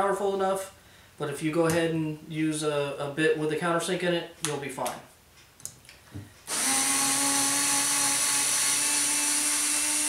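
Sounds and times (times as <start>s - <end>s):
cordless screwdriver motor running: 6.5s - 10.0s.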